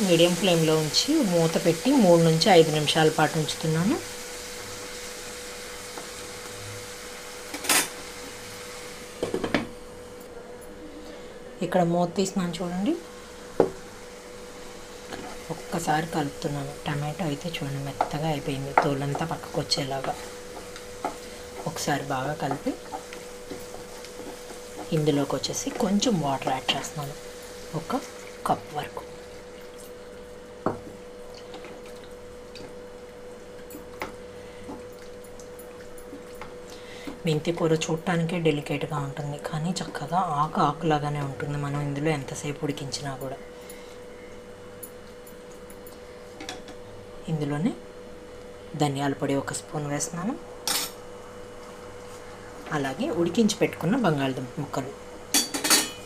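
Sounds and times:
steady low hum: 0.0s - 56.0s
spatula stirring in a pan: 17.3s - 28.5s.

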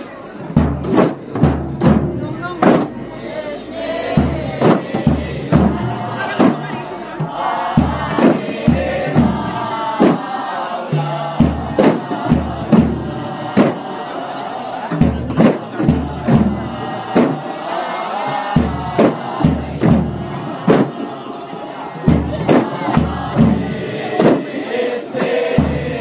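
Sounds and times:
group chanting in unison: 0.0s - 26.0s
hand-slapped frame drums: 0.4s - 3.1s, 4.1s - 14.1s, 14.9s - 17.6s, 18.2s - 21.2s, 22.1s - 26.0s
bass drum strikes: 0.5s - 3.1s, 4.0s - 10.3s, 10.9s - 13.8s, 14.9s - 17.5s, 18.4s - 21.0s, 22.1s - 24.5s.

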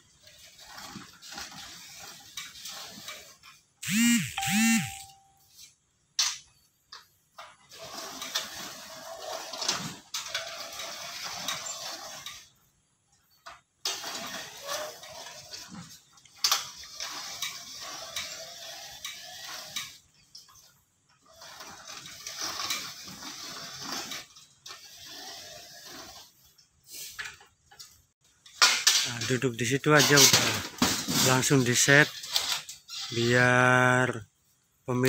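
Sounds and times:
hand-cranked bead roller turning: 0.0s - 4.0s, 7.7s - 12.6s, 13.8s - 26.6s.

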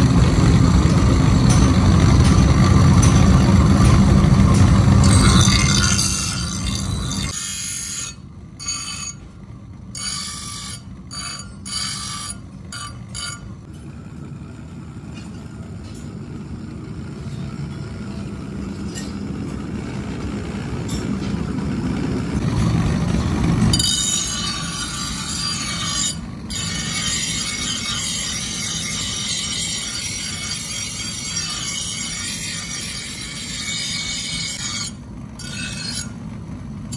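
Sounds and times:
bench grinder grinding steel: 0.0s - 9.2s, 10.0s - 13.9s, 22.4s - 36.2s
grinder running hum: 0.0s - 36.9s.

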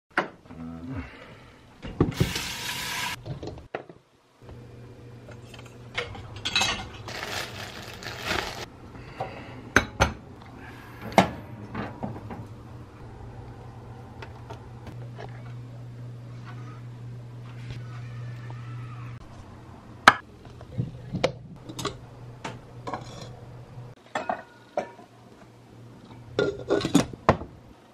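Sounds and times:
steady low hum: 4.4s - 24.0s
dishes and utensils clinking: 5.4s - 7.3s, 24.0s - 25.1s.

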